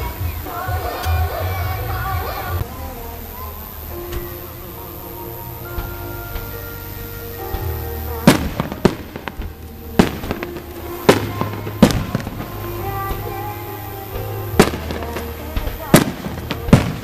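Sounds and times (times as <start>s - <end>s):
music with held notes: 0.0s - 17.0s
firework booms: 4.0s - 17.0s
firework pops and crackles: 7.4s - 17.0s.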